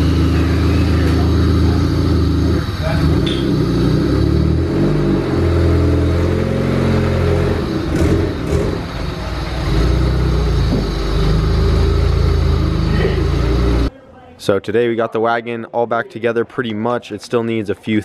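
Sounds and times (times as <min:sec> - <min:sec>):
car engine revving: 0:00.0 - 0:13.9.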